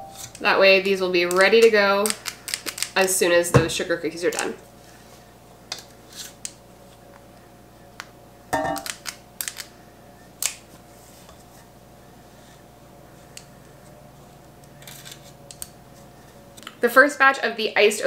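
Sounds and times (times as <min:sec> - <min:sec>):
cookie scoop snapping: 0:08.8 - 0:09.7.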